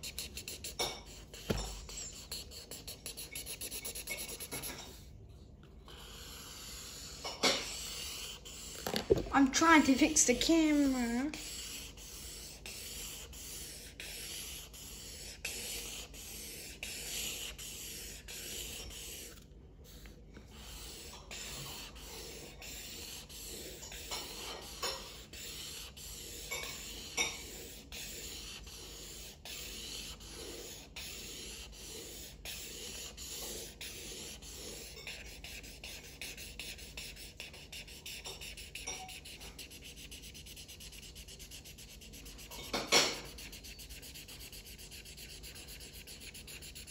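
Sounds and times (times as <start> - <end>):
marker scribbling on paper: 0.0 - 5.1, 5.9 - 46.9.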